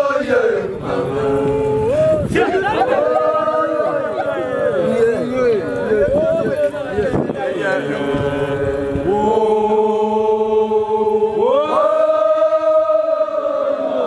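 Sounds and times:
group of voices chanting: 7.4s - 14.0s.

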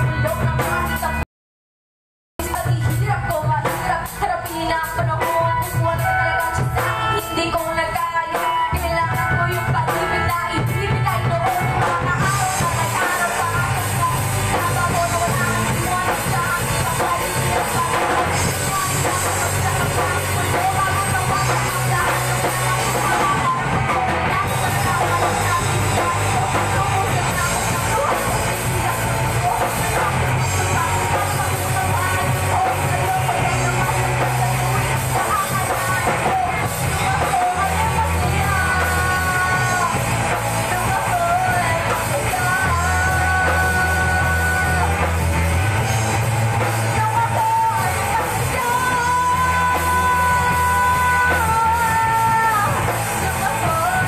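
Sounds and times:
drum kit: 0.0s - 1.2s, 2.4s - 54.0s
electric guitars: 0.0s - 1.2s, 2.4s - 54.0s
woman singing: 0.0s - 1.2s, 2.4s - 54.0s.

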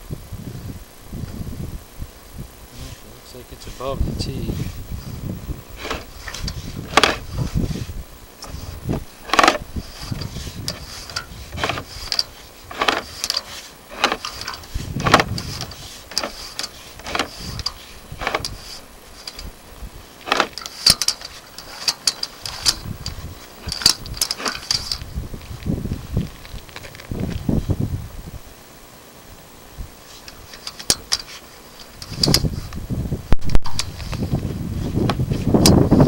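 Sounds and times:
cable knocking and scraping in pipe: 5.8s - 7.8s, 8.4s - 19.5s, 20.2s - 25.1s.

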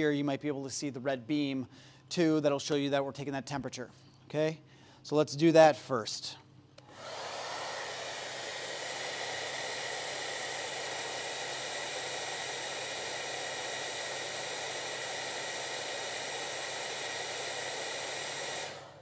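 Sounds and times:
hair dryer running: 6.8s - 19.0s.

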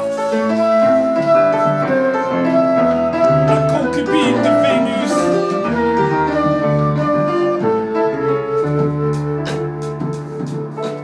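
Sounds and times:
flute melody: 0.0s - 11.0s
piano: 0.0s - 11.0s
upright bass: 3.2s - 6.3s
drums: 7.7s - 11.0s.

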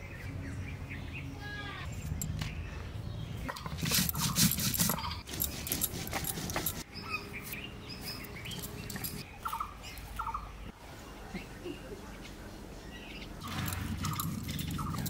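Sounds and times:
birds chirping: 0.0s - 15.0s
stone roller grinding on stone: 3.5s - 6.9s, 13.4s - 15.0s.

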